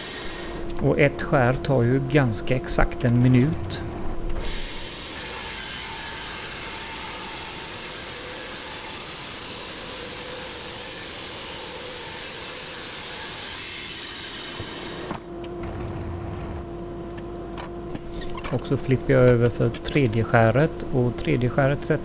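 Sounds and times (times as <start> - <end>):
band sawmill rushing hiss: 0.0 - 0.6, 4.4 - 15.1.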